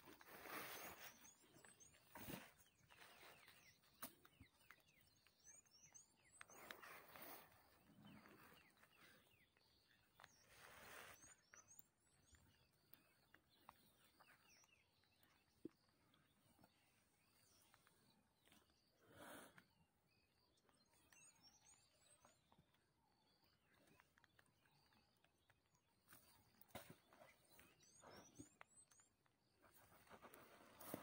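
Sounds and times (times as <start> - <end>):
soft rustles: 0.0 - 4.4, 10.1 - 12.3, 29.6 - 31.0
faint high bird chirping: 0.0 - 31.0.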